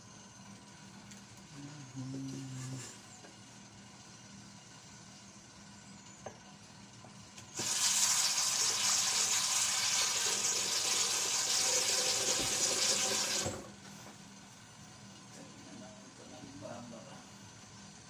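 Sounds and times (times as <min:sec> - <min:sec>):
water running from a tap: 0:07.6 - 0:13.6.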